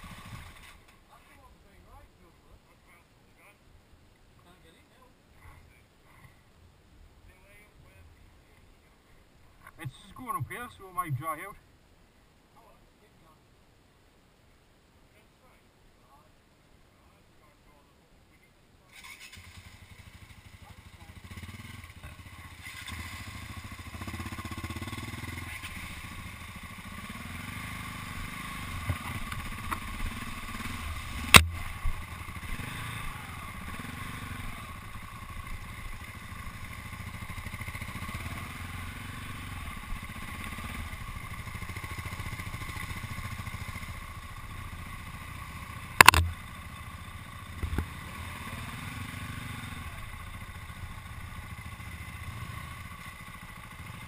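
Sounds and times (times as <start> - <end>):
motorcycle engines at low revs: 0.0 - 11.7, 17.0 - 54.0
sharp knocks: 46.0 - 46.4.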